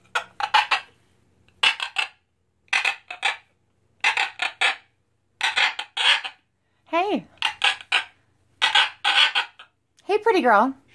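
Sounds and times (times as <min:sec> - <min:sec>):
macaw raspy calls: 0:00.0 - 0:01.0, 0:01.6 - 0:06.4, 0:07.4 - 0:09.8.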